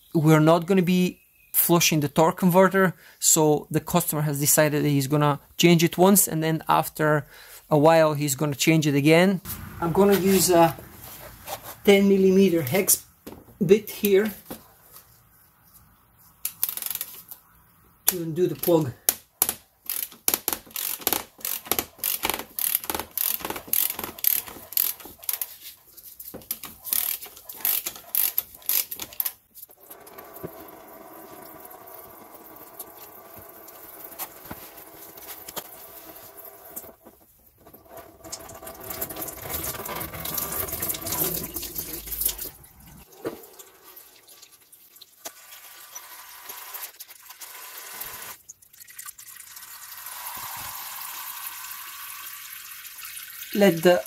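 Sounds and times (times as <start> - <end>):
ratchet tool clicking: 19.9 - 25.4, 26.9 - 29.3
fluid pouring out in a stream: 38.2 - 46.0.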